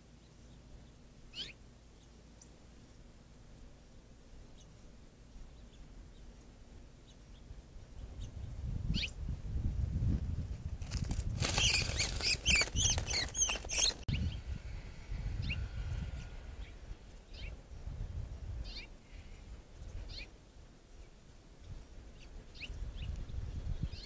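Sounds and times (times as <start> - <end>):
small bird distress chirps: 0.2 - 2.6, 11.4 - 14.4.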